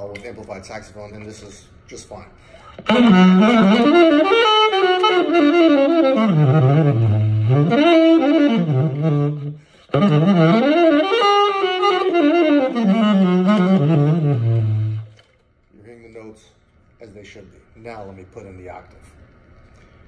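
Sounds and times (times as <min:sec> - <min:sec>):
tenor saxophone melody: 0:02.6 - 0:15.4.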